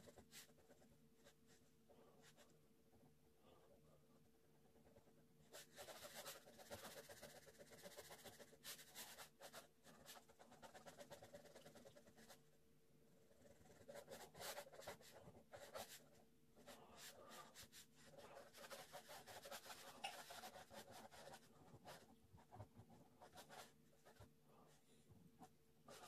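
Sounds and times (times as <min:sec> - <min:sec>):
pen scratching on paper: 0:04.6 - 0:12.4, 0:13.2 - 0:24.3.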